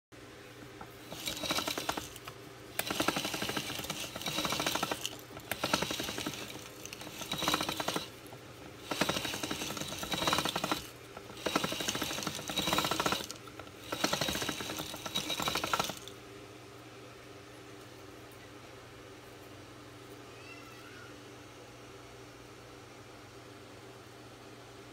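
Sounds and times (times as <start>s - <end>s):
machine rollers and gears rattling: 0.6s - 16.2s.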